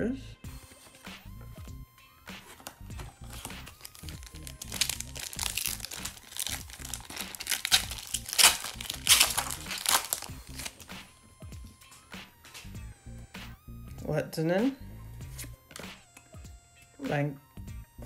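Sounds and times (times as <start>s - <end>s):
foil wrapper tearing and crinkling: 3.0s - 10.9s.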